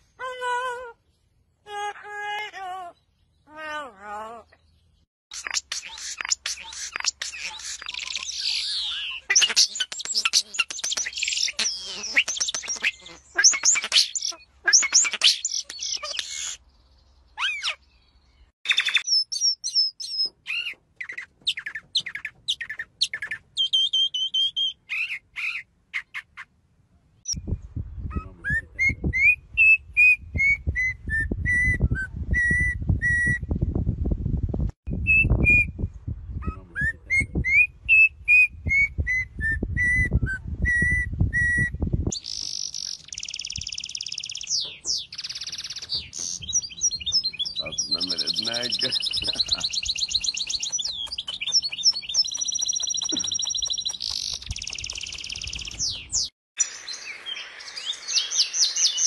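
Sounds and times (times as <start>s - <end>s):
high bird twittering: 4.6s - 16.6s, 17.3s - 26.5s, 40.8s - 59.0s
starling whistles and clicks: 5.3s - 16.6s, 37.5s - 56.3s
birds whistling phrases: 5.4s - 16.6s, 35.0s - 56.3s.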